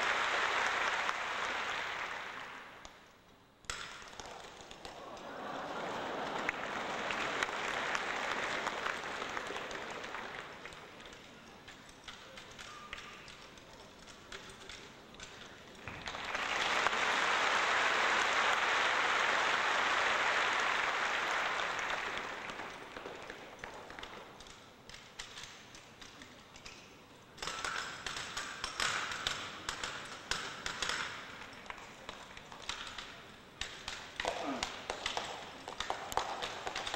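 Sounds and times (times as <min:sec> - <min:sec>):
audience applauding: 0:00.0 - 0:03.0, 0:04.2 - 0:11.2, 0:15.9 - 0:24.2.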